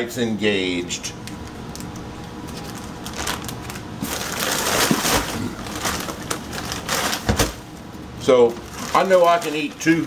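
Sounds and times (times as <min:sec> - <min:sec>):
plastic bags crinkling: 0:01.7 - 0:07.7, 0:08.4 - 0:10.0.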